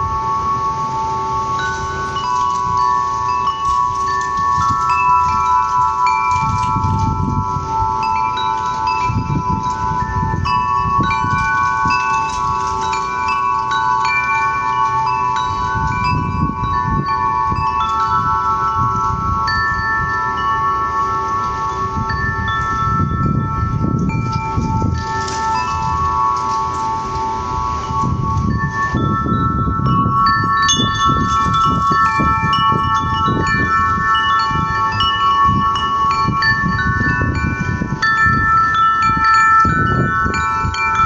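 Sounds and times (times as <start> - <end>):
low rumbling gusts: 0.0 - 41.0
wind chimes ringing: 0.0 - 41.0.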